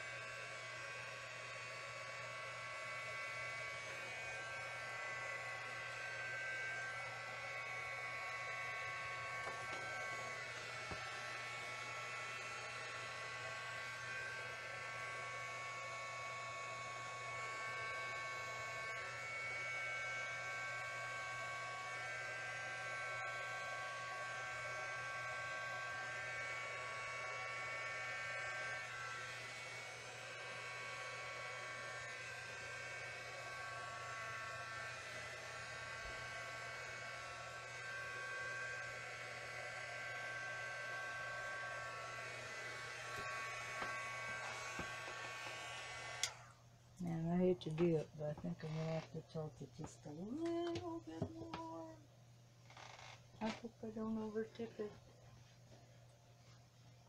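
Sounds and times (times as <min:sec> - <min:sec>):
electric air blower whining: 0:00.0 - 0:52.0, 0:52.7 - 0:55.0.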